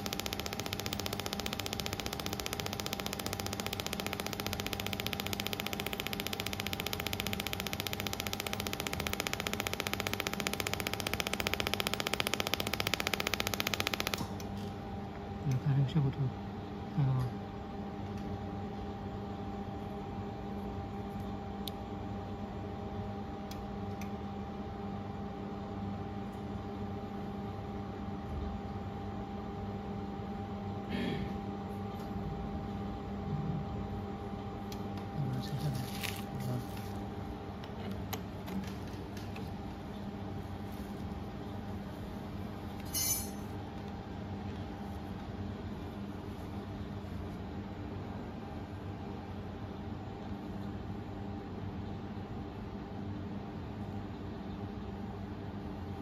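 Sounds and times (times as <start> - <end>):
laser welder snapping pulses: 0.0 - 14.5
low machine hum: 0.0 - 56.0.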